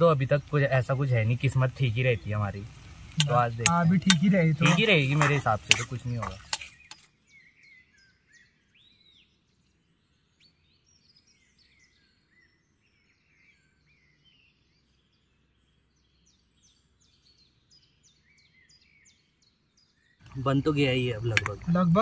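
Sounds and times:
faint bird calls: 0.0 - 10.6.

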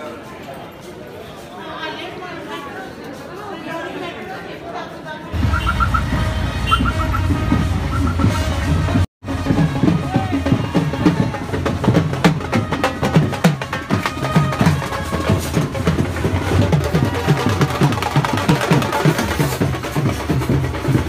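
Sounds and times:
brass playing: 5.4 - 11.2
dhol drums beating: 5.4 - 21.0.

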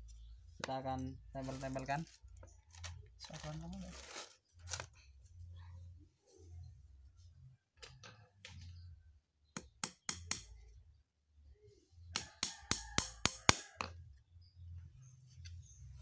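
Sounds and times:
hammer striking nail into wood: 9.6 - 10.5, 12.2 - 13.7.

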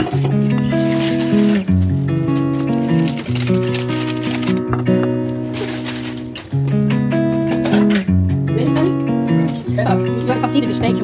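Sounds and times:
melody over sustained bass: 1.6 - 7.6.

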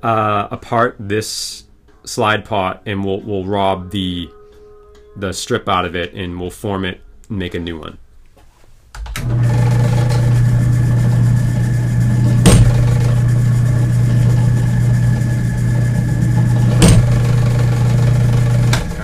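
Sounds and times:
drill press motor humming: 9.2 - 19.0.

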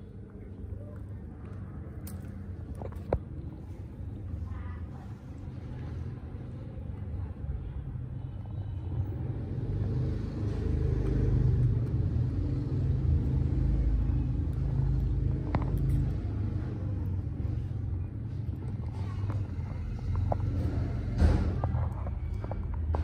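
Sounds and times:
low rumble: 0.0 - 23.0.

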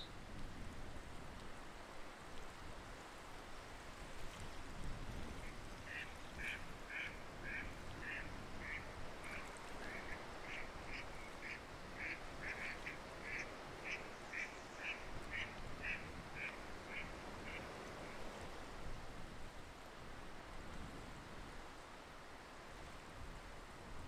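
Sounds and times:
waterfowl short high calls: 5.9 - 17.7.

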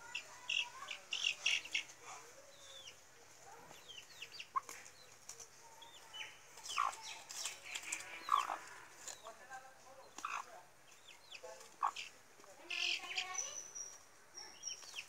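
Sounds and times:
chicks peeping: 0.0 - 15.0
hen clucking: 6.0 - 13.4.

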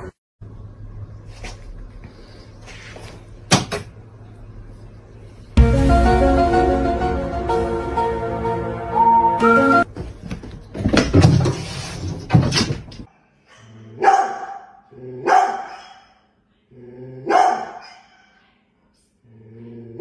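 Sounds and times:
dog barking deeply: 14.0 - 15.8, 17.2 - 17.8.

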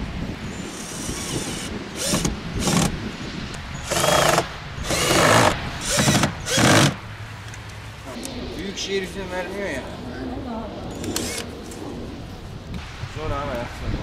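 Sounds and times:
cordless drill driving screws: 0.7 - 3.0, 3.8 - 7.0, 11.1 - 11.5.

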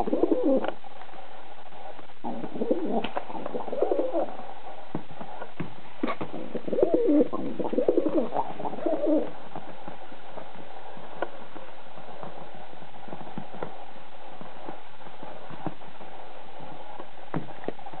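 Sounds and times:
pigeon cooing: 0.0 - 0.8, 2.2 - 4.4, 6.0 - 9.3.

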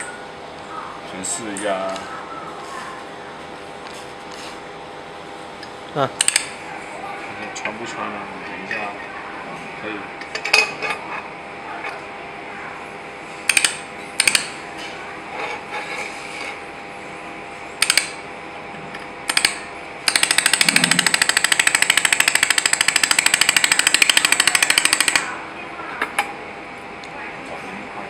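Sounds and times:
laser welder snapping: 6.2 - 6.5, 13.5 - 14.5, 17.8 - 18.2, 19.3 - 25.3
laser welder pulses: 19.3 - 25.3.

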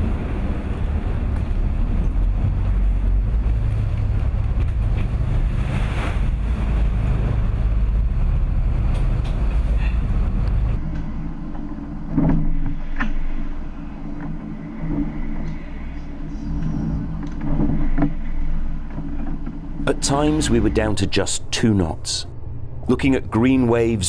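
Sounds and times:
rushing water: 0.0 - 10.8
boat engine rumble: 0.0 - 24.0
wind: 0.0 - 24.0.

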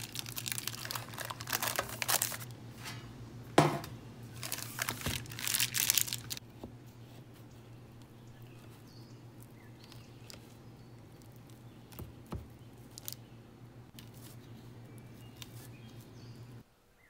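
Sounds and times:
baking paper crinkling: 0.0 - 3.0, 4.3 - 13.2, 13.9 - 16.2.

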